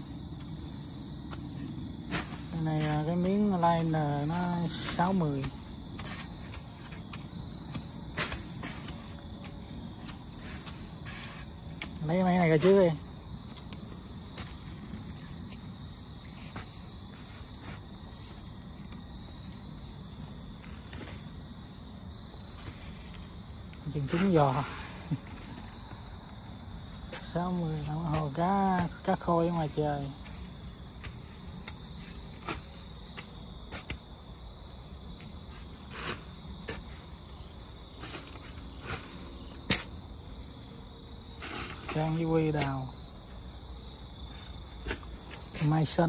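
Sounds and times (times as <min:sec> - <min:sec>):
crickets trilling: 0:00.0 - 0:46.0
shovels cutting into soil: 0:02.1 - 0:07.0, 0:07.6 - 0:09.2, 0:41.4 - 0:42.8.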